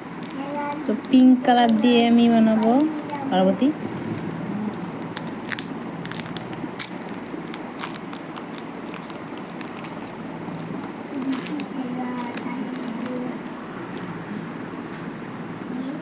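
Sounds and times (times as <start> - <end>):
low steady hum: 0.0 - 16.0
plastic packet crinkling: 0.1 - 3.2, 4.7 - 14.3.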